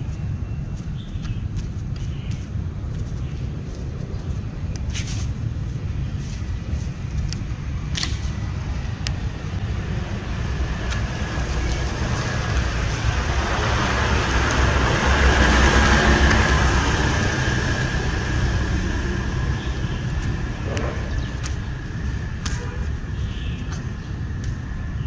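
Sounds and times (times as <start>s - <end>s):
low traffic rumble: 0.0s - 25.0s
vehicle passing on street: 0.0s - 25.0s.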